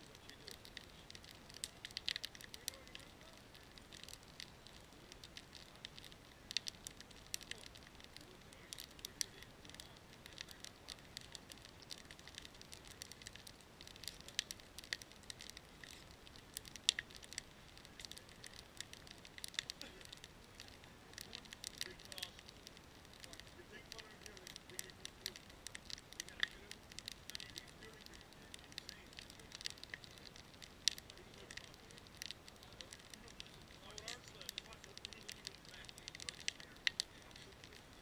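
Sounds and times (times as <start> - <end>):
sharp pops and snaps: 0.0 - 38.0
wood fire crackling: 0.0 - 38.0.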